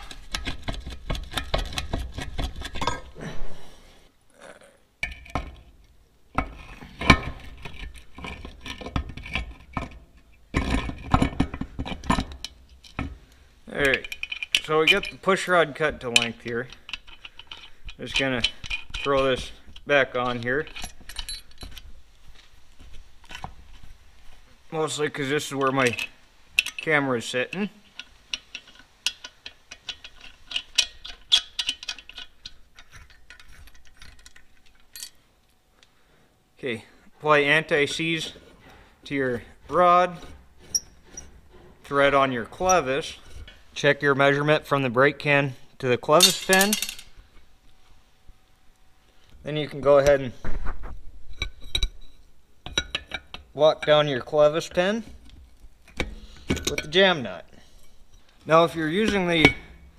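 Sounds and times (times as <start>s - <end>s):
metal tools clinking and scraping: 0.0s - 3.2s, 6.4s - 22.0s, 25.2s - 35.3s, 37.5s - 44.6s, 45.8s - 47.5s, 51.3s - 59.9s.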